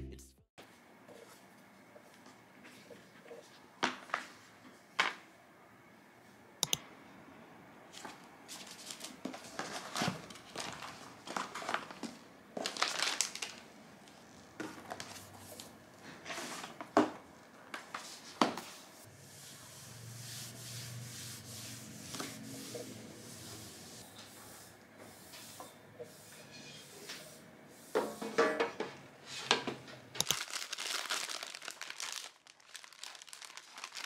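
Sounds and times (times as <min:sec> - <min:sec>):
objects rustling: 0:07.9 - 0:13.6.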